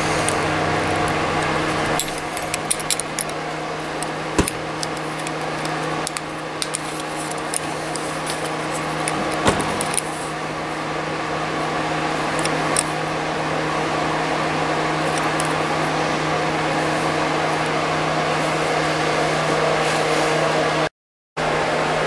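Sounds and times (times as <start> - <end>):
steady background hum: 0.0 - 22.0
belt buckle clicking: 1.8 - 3.4, 4.0 - 10.1
sharp knocks: 4.4 - 4.8.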